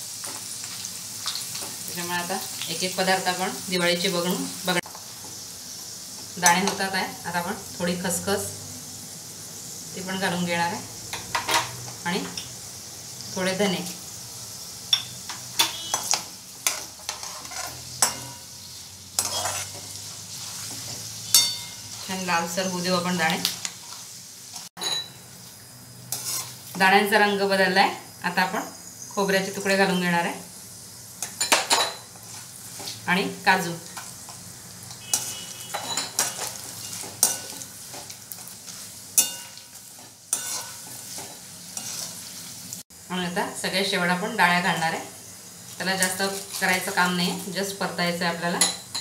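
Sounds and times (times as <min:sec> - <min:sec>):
food sizzling in hot oil: 0:00.0 - 0:49.0
spoon scraping across wok: 0:14.9 - 0:22.9, 0:26.1 - 0:26.8, 0:31.2 - 0:33.0, 0:33.8 - 0:42.6
metal spoon clinking on wok: 0:21.3 - 0:22.0, 0:35.1 - 0:37.6, 0:39.2 - 0:39.7.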